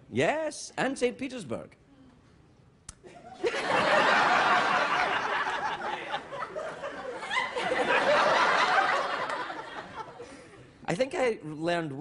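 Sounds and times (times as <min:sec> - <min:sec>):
audience laughing: 0:03.1 - 0:10.6.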